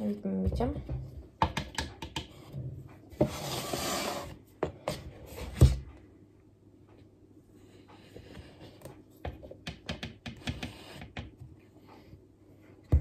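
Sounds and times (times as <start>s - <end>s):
plastic scoop scraping a canister: 3.2s - 4.4s.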